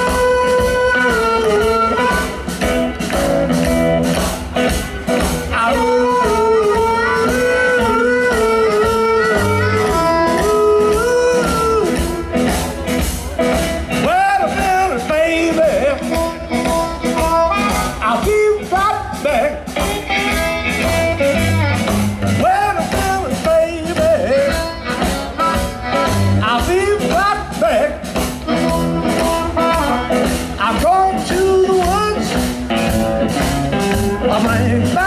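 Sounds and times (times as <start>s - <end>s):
amplified harmonica wailing: 0.0s - 2.7s, 5.6s - 12.5s, 15.9s - 18.6s, 23.6s - 27.2s, 28.4s - 30.4s
drums steady beat: 0.0s - 35.0s
electric guitar: 0.0s - 35.0s
upright double bass: 0.0s - 35.0s.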